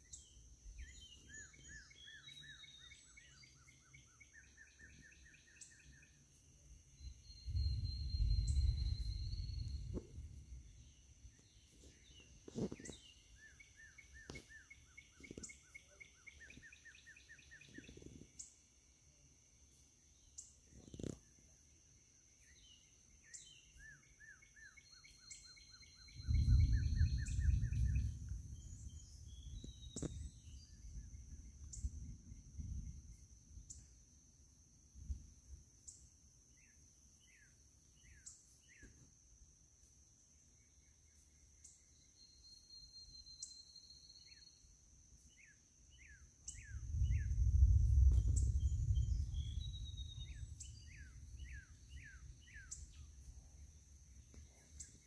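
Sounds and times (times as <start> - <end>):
high insect drone: 0.0 - 55.0
songbirds chirping: 0.0 - 55.0
low rumble: 7.3 - 11.1, 26.2 - 33.1, 46.7 - 54.0.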